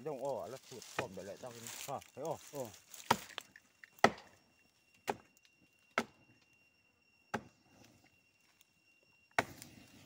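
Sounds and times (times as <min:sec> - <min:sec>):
axe chopping tree trunk: 0:02.9 - 0:04.3, 0:05.0 - 0:05.3, 0:05.9 - 0:06.2, 0:07.3 - 0:07.5, 0:09.4 - 0:09.6.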